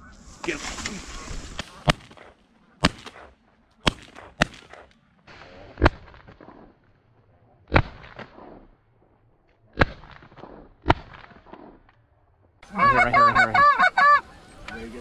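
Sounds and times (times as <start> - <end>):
shotgun shots with echo: 1.6 - 6.8, 7.7 - 8.8, 9.7 - 11.9.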